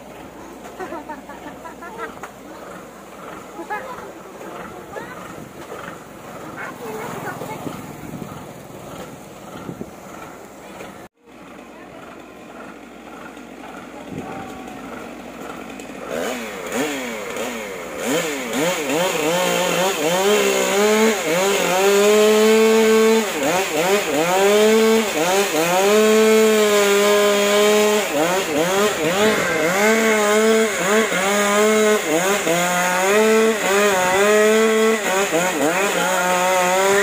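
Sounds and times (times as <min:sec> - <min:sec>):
chainsaw revving cutting wood: 0:00.0 - 0:37.0.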